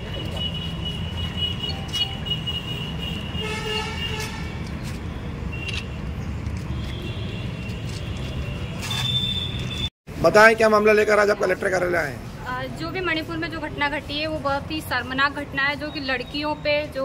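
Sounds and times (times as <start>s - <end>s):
street traffic rumble: 0.0s - 17.0s
vehicle horn: 0.3s - 4.6s.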